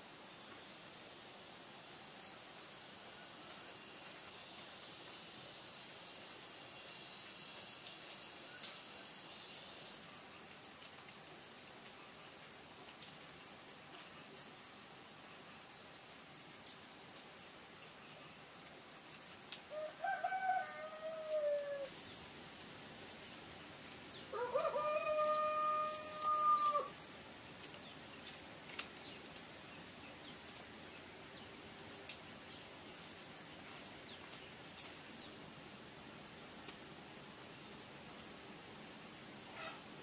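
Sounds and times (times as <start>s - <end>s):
rooster crowing: 19.7s - 21.9s, 24.3s - 27.0s.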